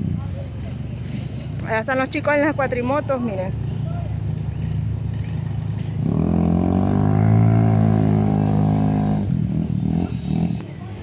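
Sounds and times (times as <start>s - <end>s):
quad bike engine revving: 3.5s - 10.8s.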